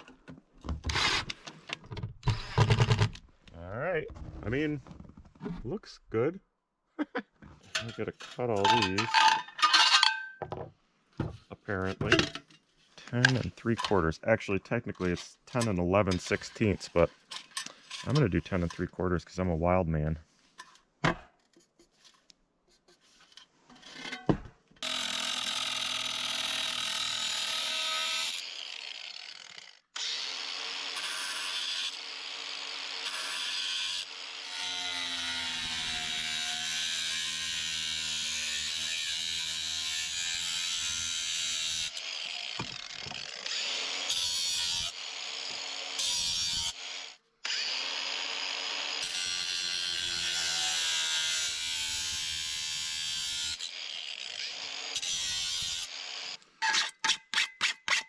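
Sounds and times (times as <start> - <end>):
angle grinder cutting metal: 7.8 - 10.4, 14.8 - 19.1, 24.8 - 58.0.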